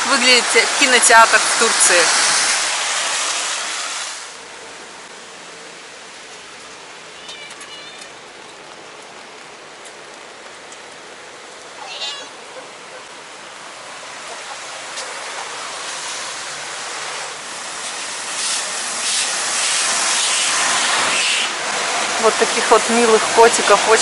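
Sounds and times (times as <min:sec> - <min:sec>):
steady rain hiss: 0:00.0 - 0:24.0
tyres on wet road: 0:00.0 - 0:24.0
cat meowing: 0:07.1 - 0:08.2, 0:11.8 - 0:12.4.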